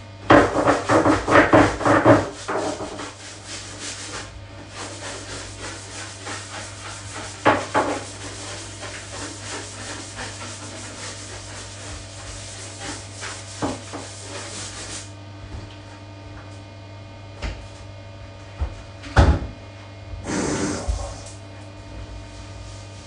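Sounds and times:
sponge scrubbing a bathtub: 0.3s - 15.2s, 20.2s - 23.0s.

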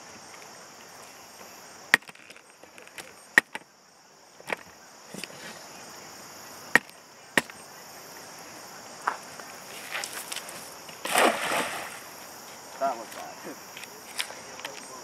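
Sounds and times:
insects droning: 0.0s - 15.0s
net splashing into water: 11.0s - 12.2s.

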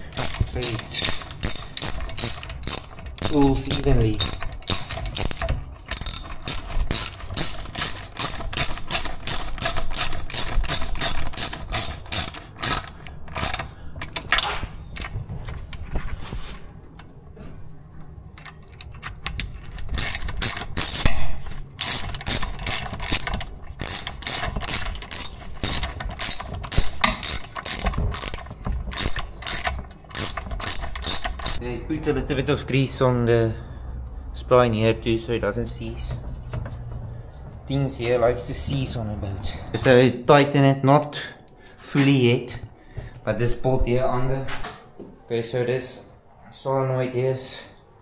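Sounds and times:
ratchet wrench clicking: 0.0s - 13.8s, 18.7s - 21.2s, 21.8s - 31.6s.

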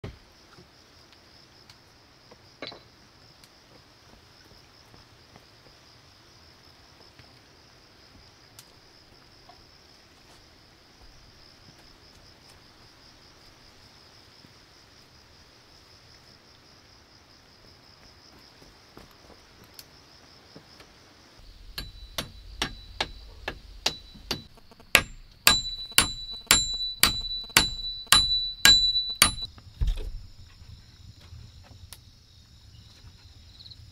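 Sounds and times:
insects buzzing: 0.2s - 33.9s
hammer blows on wooden poles: 21.4s - 29.5s.

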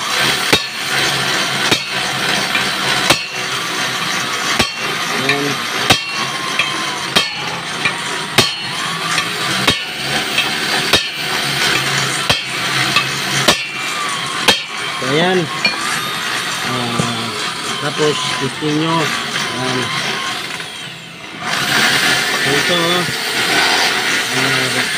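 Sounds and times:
hammer striking steel punch: 0.5s - 0.9s, 1.6s - 3.6s, 4.5s - 14.9s, 15.6s - 16.0s.

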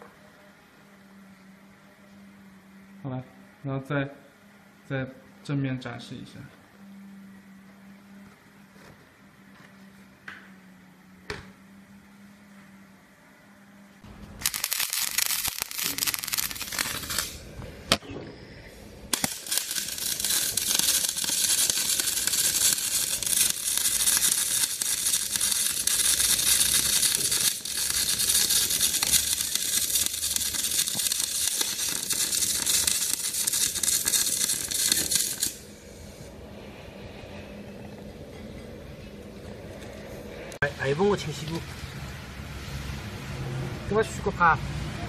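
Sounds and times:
welding arc crackling and sizzling: 14.1s - 18.0s, 19.0s - 36.4s.

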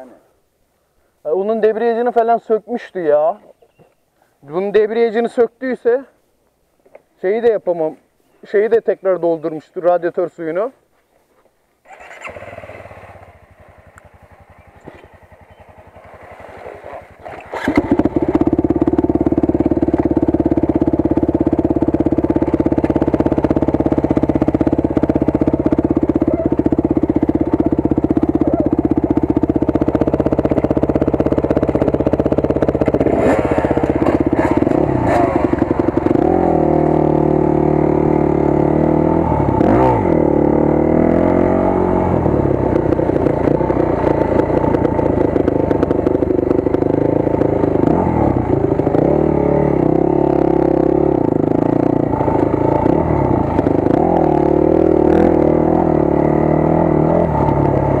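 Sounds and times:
dirt bike engine idling: 11.8s - 58.0s
dirt bike engine revving: 11.8s - 58.0s.

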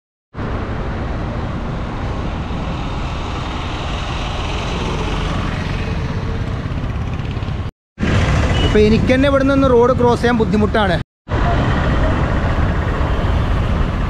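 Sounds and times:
road traffic noise: 0.3s - 14.0s.

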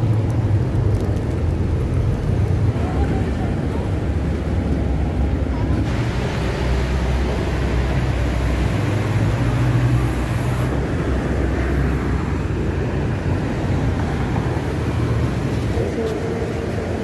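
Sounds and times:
traffic engines passing: 0.0s - 17.0s.

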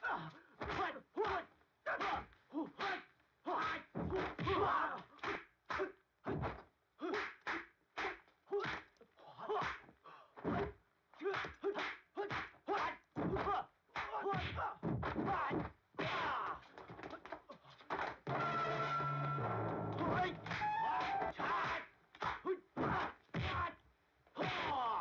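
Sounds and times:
fighters yelling: 0.0s - 5.9s, 11.2s - 16.6s, 19.9s - 23.8s, 24.4s - 25.0s
punch and block impacts: 4.0s - 4.7s, 13.2s - 16.2s, 22.8s - 23.7s.

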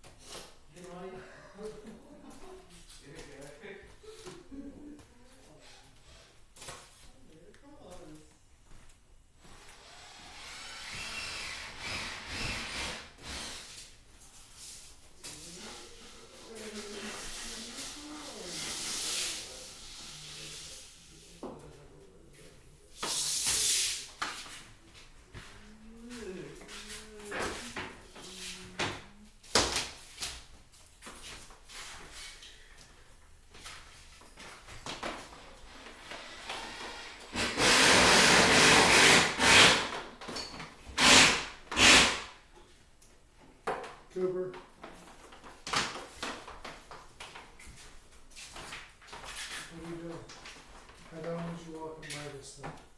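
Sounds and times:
hard scraping and rubbing: 9.9s - 21.4s
hissing bursts: 17.1s - 21.3s, 22.9s - 24.2s, 36.1s - 39.9s, 41.0s - 42.4s.

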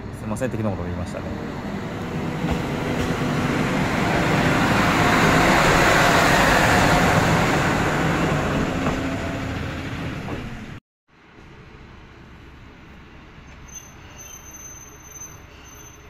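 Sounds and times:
train wheels rumbling on rails: 0.0s - 10.8s
diesel railcar engine: 0.0s - 16.0s.

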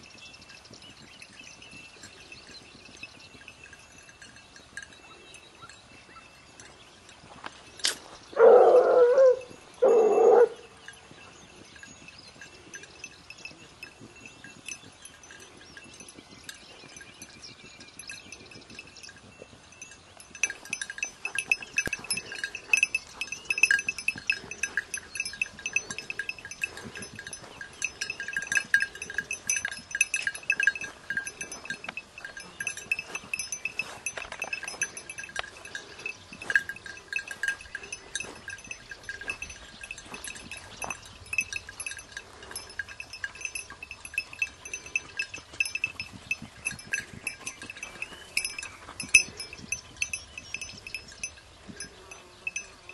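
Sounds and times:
small metal bell jingling: 0.0s - 52.9s.

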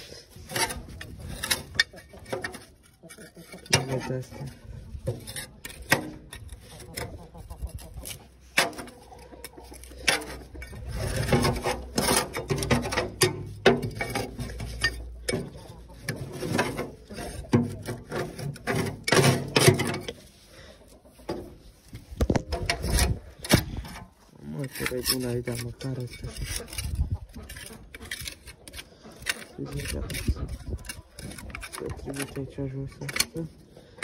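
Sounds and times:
scraper rasping on metal: 9.6s - 20.2s, 24.5s - 33.3s.

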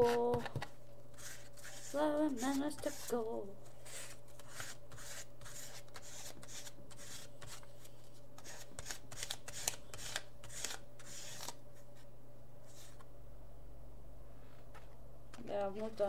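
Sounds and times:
paint scraped across paper card: 1.1s - 11.6s.

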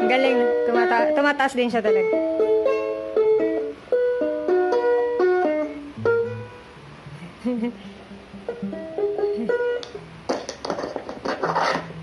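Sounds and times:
ukulele through small amplifier: 1.9s - 10.8s.

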